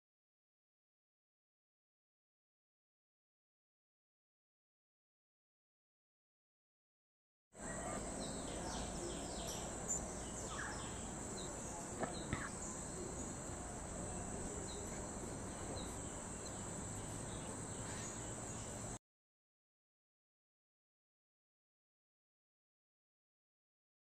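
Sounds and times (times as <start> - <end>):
bird chirps: 7.6 - 19.0
insects droning: 7.6 - 19.0.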